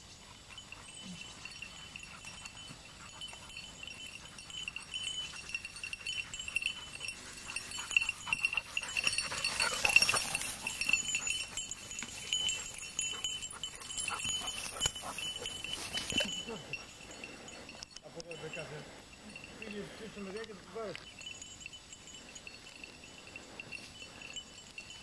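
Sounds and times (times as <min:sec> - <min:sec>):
dog collar bell tinkling: 0:00.0 - 0:25.0
rustling undergrowth: 0:00.0 - 0:25.0.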